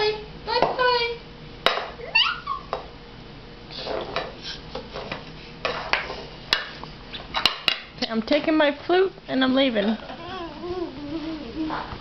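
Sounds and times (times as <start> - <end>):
baby squealing: 2.0 - 2.7.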